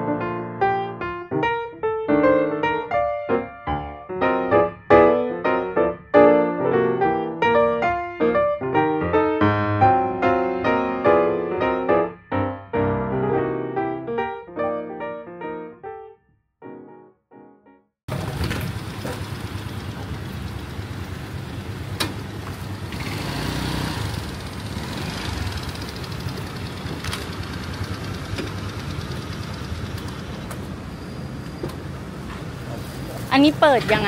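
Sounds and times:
piano music: 0.0s - 17.9s
motorbike engines rumbling: 18.1s - 34.0s
street traffic: 18.1s - 34.0s.

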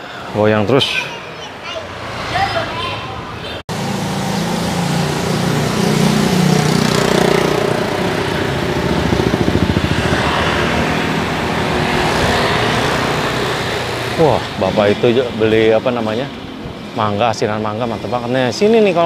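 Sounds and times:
motorcycle and scooter engines: 0.0s - 19.0s
wind noise on microphone: 6.7s - 14.7s.

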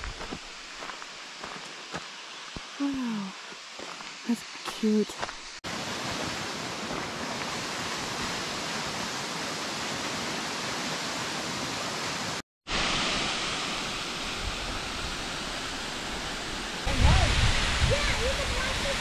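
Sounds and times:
waterfall rushing: 5.7s - 19.0s.

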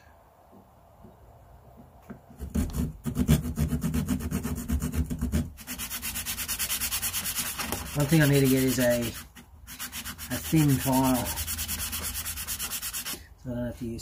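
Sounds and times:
hand saw cutting wood: 2.4s - 13.2s
sandpaper rubbing wood: 2.4s - 13.2s.

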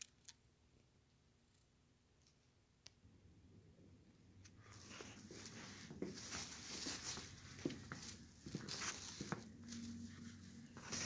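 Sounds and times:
faint low hum: 0.0s - 11.0s
footsteps on hard floor: 4.8s - 10.0s.

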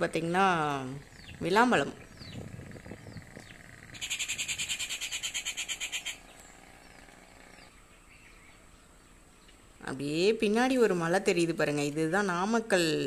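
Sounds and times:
faint bird chirps: 1.0s - 9.9s
high pulsed animal trill: 2.4s - 7.6s.

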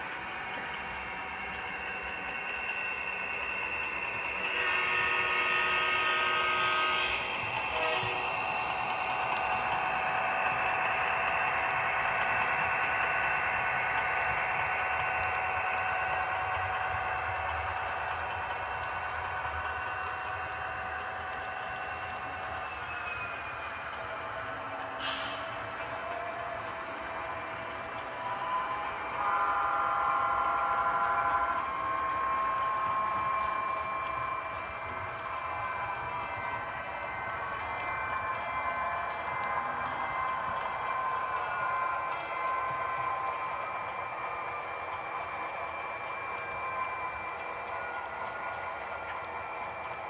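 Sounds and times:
model train mechanical hum and hiss: 0.0s - 50.0s
multi-chime train horn: 4.2s - 8.5s, 28.8s - 32.2s.

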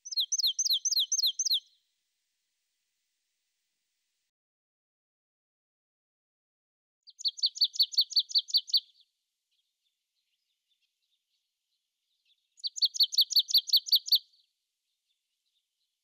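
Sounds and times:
songbird singing high notes: 0.0s - 1.7s, 7.2s - 8.8s, 12.7s - 14.2s.

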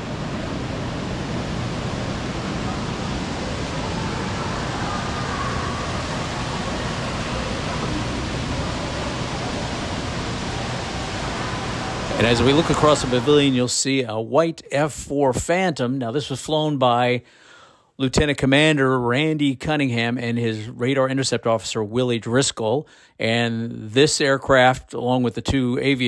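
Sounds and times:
water fountain splashing: 0.0s - 13.7s
faint voices: 2.4s - 13.7s.

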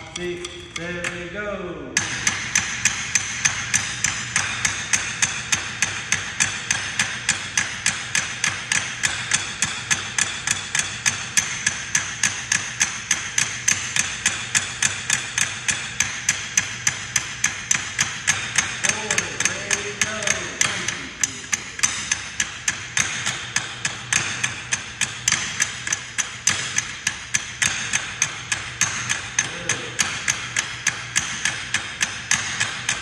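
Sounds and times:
drumsticks striking folding chairs: 0.0s - 1.4s, 18.3s - 24.7s, 28.5s - 31.7s.

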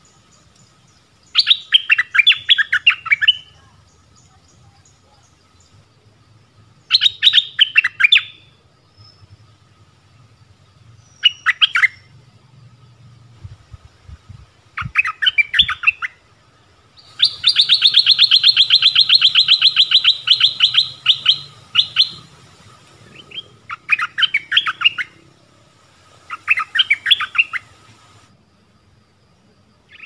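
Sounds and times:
bird chirping and trilling: 0.9s - 5.8s, 6.8s - 9.3s, 11.0s - 12.1s, 14.8s - 16.2s, 17.0s - 25.3s, 26.3s - 27.8s.

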